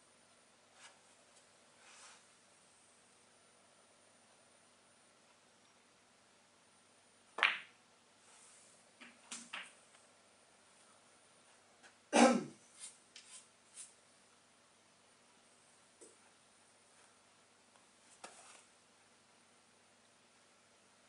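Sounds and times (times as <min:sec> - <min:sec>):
ball knock with falling rattle: 0:07.4 - 0:07.8
cue striking ball: 0:07.4 - 0:07.8
snooker balls clicking: 0:07.4 - 0:07.8, 0:09.0 - 0:09.8.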